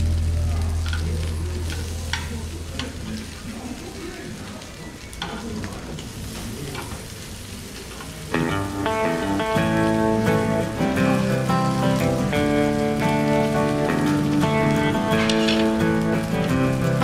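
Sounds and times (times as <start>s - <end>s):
plucked guitar music: 0.0s - 3.0s, 8.3s - 17.0s
meat sizzling: 0.0s - 17.0s.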